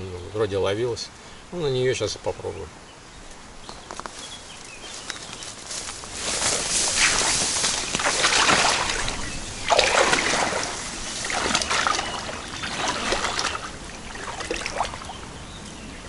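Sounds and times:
footsteps wading through water: 5.7 - 15.4.

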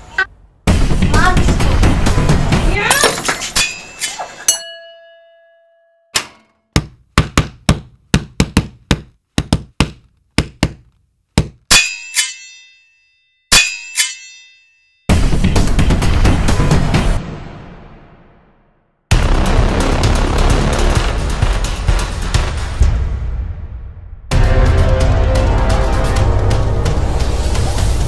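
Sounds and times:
metallic clang ringing: 2.9 - 6.7, 11.7 - 15.1.

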